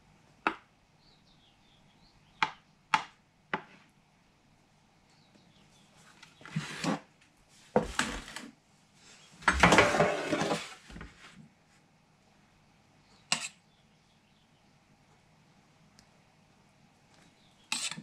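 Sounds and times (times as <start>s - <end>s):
metal baking tray clattering: 9.5s - 10.7s.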